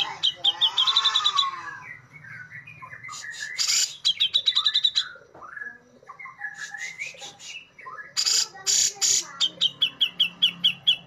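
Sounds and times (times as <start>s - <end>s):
bulbul singing: 0.0s - 11.0s.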